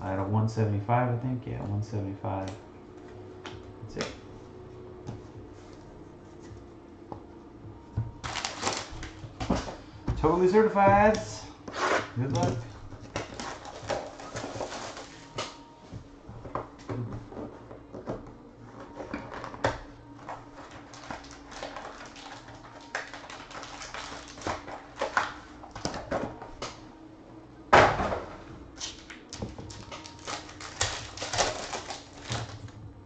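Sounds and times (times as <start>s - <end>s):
foil pack crinkling and tearing: 8.2s - 9.2s, 13.1s - 15.6s, 20.4s - 25.9s, 28.8s - 32.8s
cards clicking and rustling: 8.2s - 9.6s, 19.0s - 26.8s, 28.8s - 32.8s.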